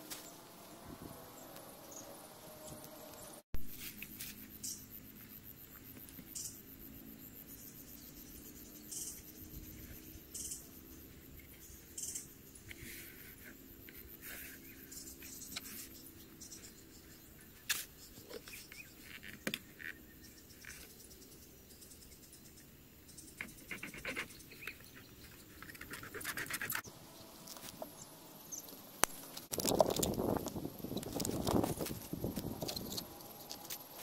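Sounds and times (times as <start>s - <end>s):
high insect whine: 0.0s - 19.2s, 26.8s - 34.0s.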